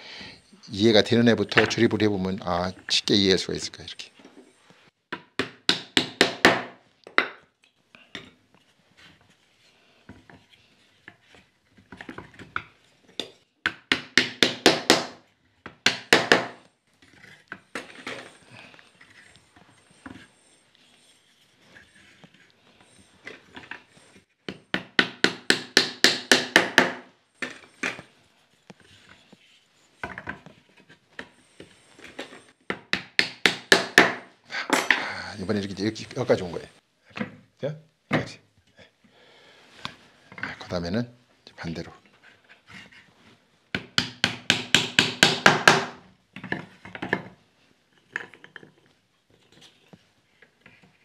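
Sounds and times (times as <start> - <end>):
wooden mallet knocking: 24.7 - 27.0.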